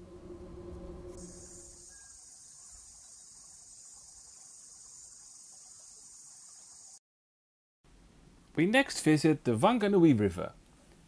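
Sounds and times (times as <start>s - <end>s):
insects buzzing: 0.0s - 7.0s.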